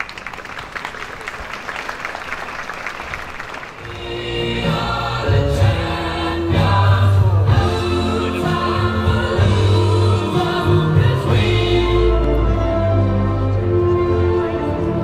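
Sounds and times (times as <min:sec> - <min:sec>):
audience applauding: 0:00.0 - 0:04.2
music with heavy bass and singing: 0:03.9 - 0:12.8.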